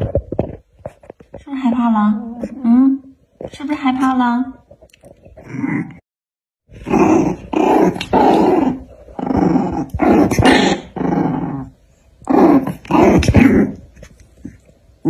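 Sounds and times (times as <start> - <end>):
puppies growling: 6.7 - 14.7.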